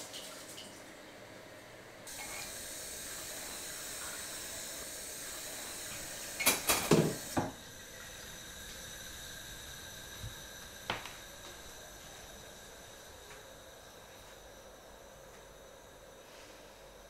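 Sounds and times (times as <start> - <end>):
tap water running into sink: 5.4 - 8.8
dishes knocking against basin: 6.5 - 7.6.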